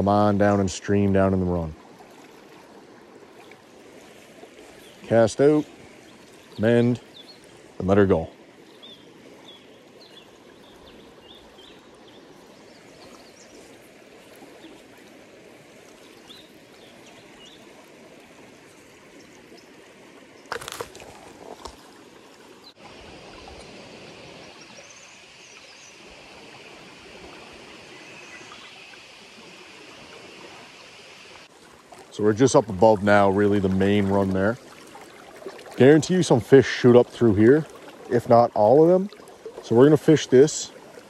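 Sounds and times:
water rushing over rocks: 13.0s - 41.0s.

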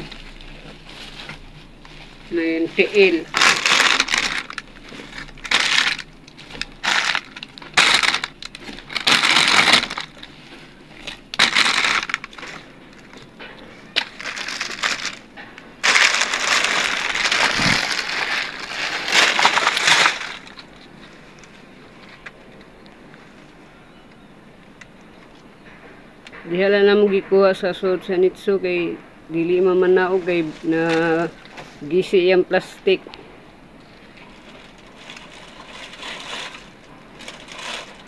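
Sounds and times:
plastic sheeting rustling: 0.0s - 22.2s, 30.0s - 31.9s, 33.8s - 38.0s.

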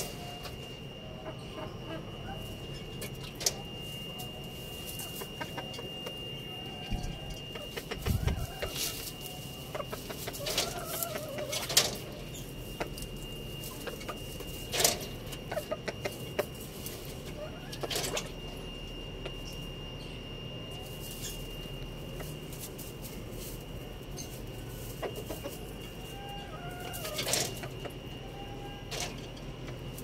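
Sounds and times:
chickens clucking: 0.0s - 30.0s
thin steady high tone: 0.0s - 30.0s
clicks and rustles of birds moving: 3.0s - 5.9s, 6.9s - 18.4s, 20.8s - 28.0s, 28.8s - 30.0s.

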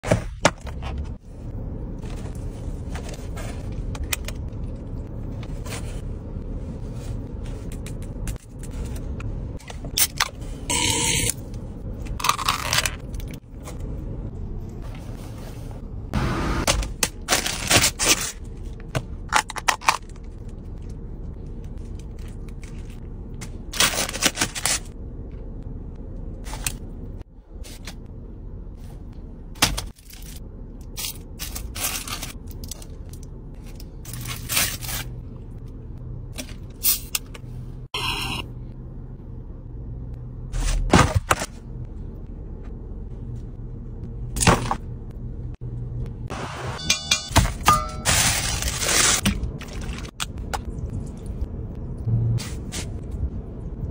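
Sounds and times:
low steady hum: 0.0s - 53.9s
foil crinkling: 48.1s - 49.2s.

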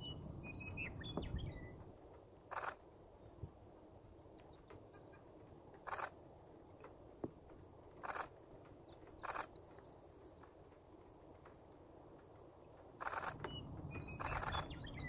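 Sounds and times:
faint bird chirps: 0.0s - 1.8s, 4.5s - 6.1s, 8.8s - 10.4s, 13.0s - 15.0s.

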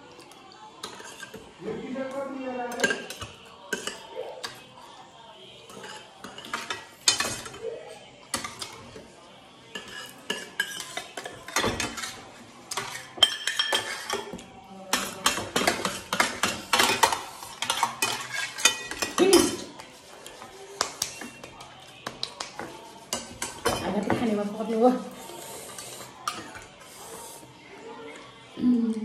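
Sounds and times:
spoons clinking on metal plates: 2.7s - 4.7s, 5.6s - 7.7s, 9.7s - 24.4s.

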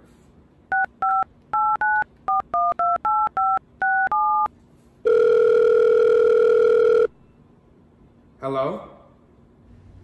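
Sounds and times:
phone ringing tone: 0.7s - 7.2s.

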